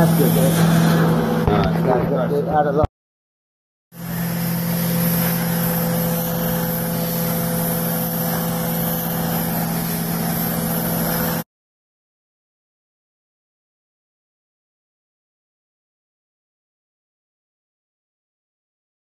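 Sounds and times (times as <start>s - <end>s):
cleaning wand rushing hiss: 0.0s - 1.2s, 4.0s - 11.4s
low machine drone: 0.0s - 2.9s, 4.0s - 11.4s.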